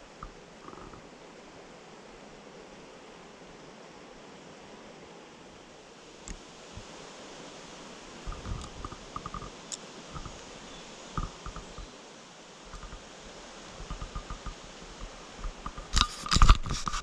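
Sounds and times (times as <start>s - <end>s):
faint steady hiss: 0.0s - 17.0s
handling noise crunches and scrapes: 15.5s - 17.0s.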